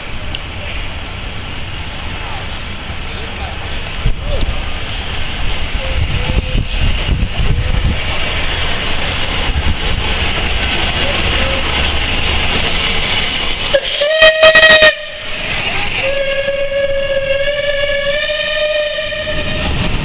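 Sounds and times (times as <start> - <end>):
steam locomotive rumbling: 0.0 - 20.0
steam whistle: 13.7 - 15.2, 16.0 - 19.6.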